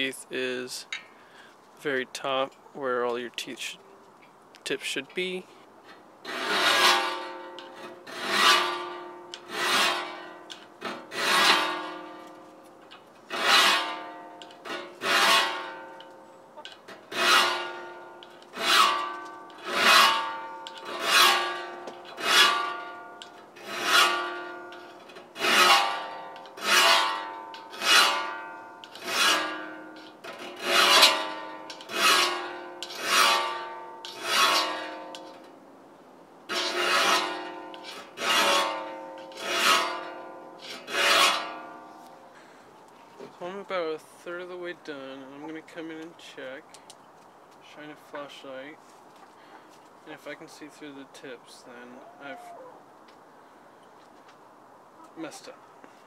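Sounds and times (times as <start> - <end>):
hand file rasping on saw teeth: 6.3 - 10.2, 10.9 - 11.8, 14.7 - 15.7, 28.8 - 34.8.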